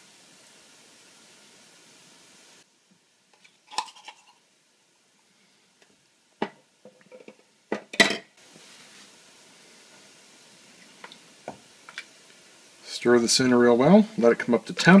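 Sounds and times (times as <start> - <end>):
can set down on stovetop: 6.4 - 8.3.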